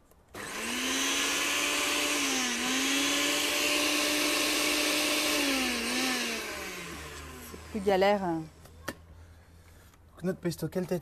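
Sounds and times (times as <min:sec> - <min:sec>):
blender motor whining: 0:00.3 - 0:08.8.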